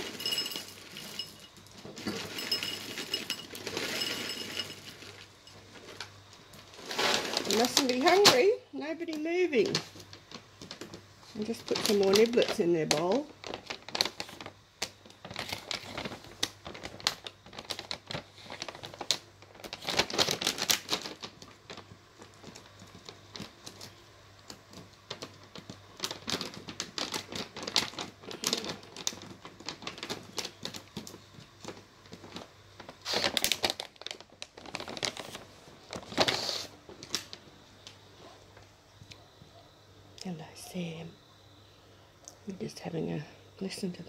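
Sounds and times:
cat biscuits rattling into bowl: 0:00.0 - 0:06.1, 0:06.7 - 0:08.5, 0:10.6 - 0:35.4.

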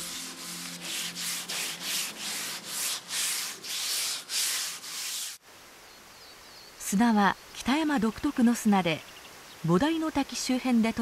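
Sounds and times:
sand scrubbing on wood rasping: 0:00.0 - 0:05.4.

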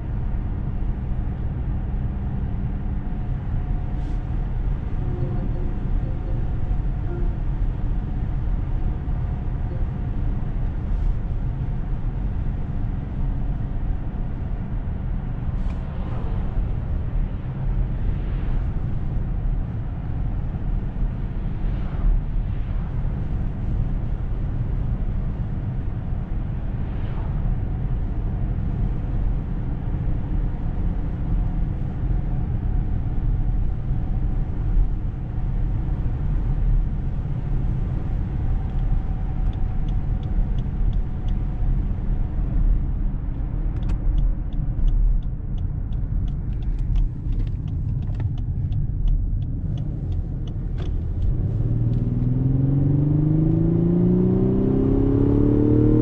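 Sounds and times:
car engine and road rumble: 0:00.0 - 0:56.0
light regular ticks: 0:38.7 - 0:41.4, 0:43.7 - 0:52.3.

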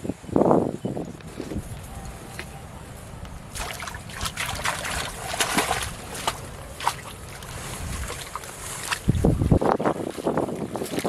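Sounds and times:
water splashing and sloshing: 0:01.1 - 0:11.0
fish thrashing in water: 0:03.4 - 0:09.2.

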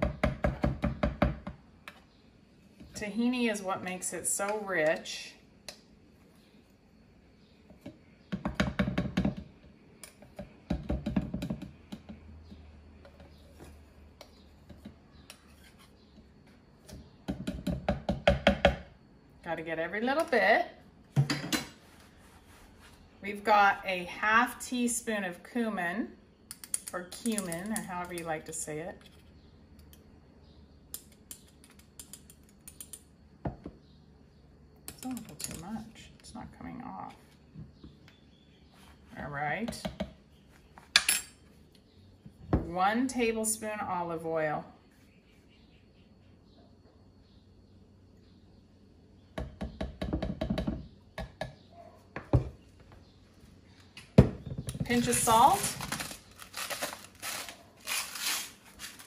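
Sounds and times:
knock: 0:49.4 - 0:51.5.

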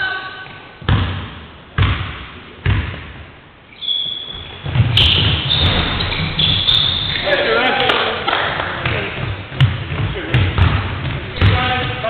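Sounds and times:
basketball bouncing on wooden floor: 0:00.8 - 0:03.2, 0:04.3 - 0:07.2, 0:08.8 - 0:12.0
high squeaks: 0:03.7 - 0:07.5.

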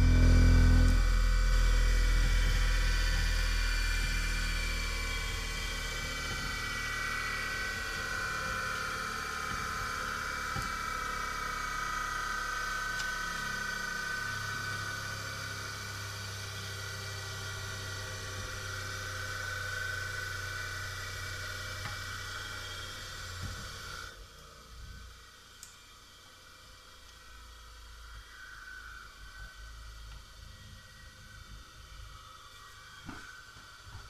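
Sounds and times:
bench grinder motor humming: 0:00.0 - 0:24.2.

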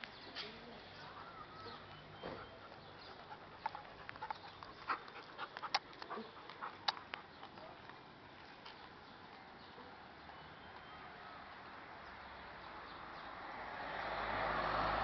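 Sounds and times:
dog panting: 0:02.4 - 0:07.9.

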